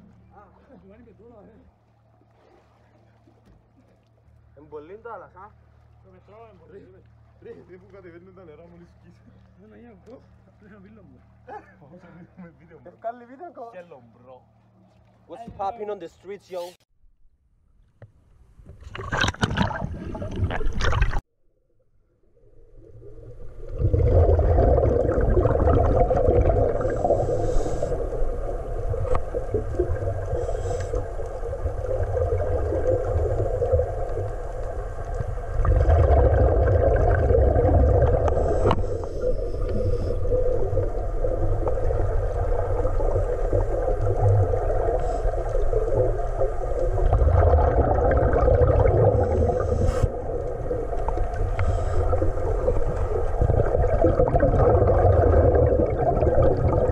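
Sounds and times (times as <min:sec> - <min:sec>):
muffled underwater rumble: 0:22.2 - 0:56.9
scuba exhaust bubbling: 0:22.7 - 0:56.9.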